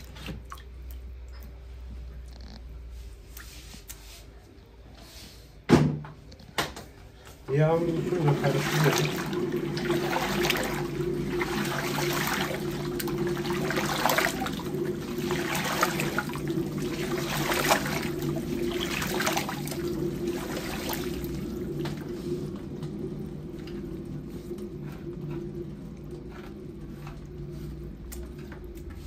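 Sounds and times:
steady low hum: 0.0 - 29.0
liquid sloshing in metal bowl: 7.5 - 29.0.

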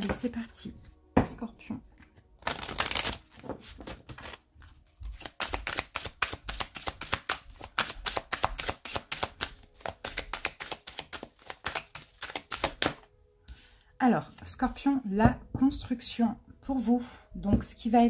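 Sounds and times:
cards being shuffled: 2.4 - 13.0.

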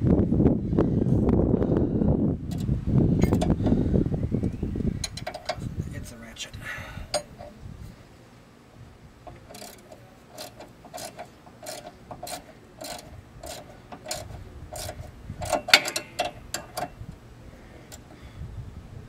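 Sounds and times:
socket ratchet clicking: 9.3 - 17.0.

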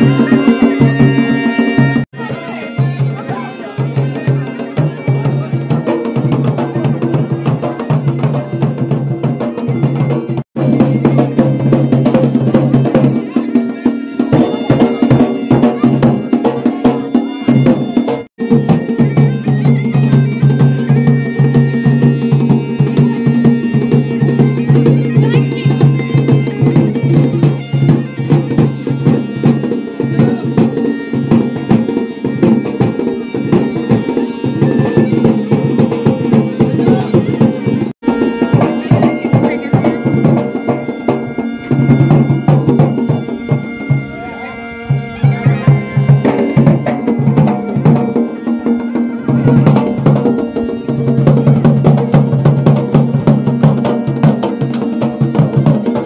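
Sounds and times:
bagpipe melody with drone: 0.0 - 56.0
drums beating: 0.0 - 56.0.

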